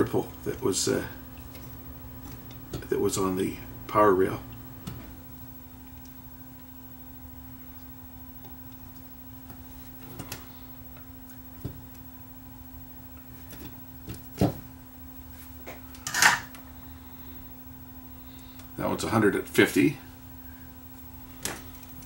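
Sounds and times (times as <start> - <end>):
faint hum: 0.0 - 22.0.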